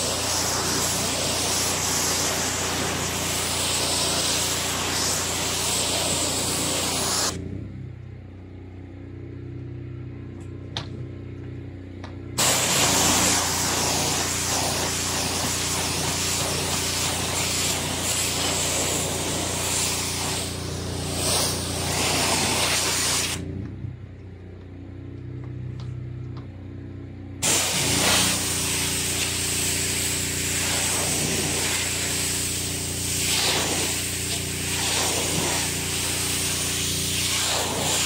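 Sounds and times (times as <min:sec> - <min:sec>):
water spraying onto panels: 0:00.0 - 0:07.4, 0:12.4 - 0:23.4, 0:27.4 - 0:38.0
steady motor hum: 0:09.9 - 0:38.0.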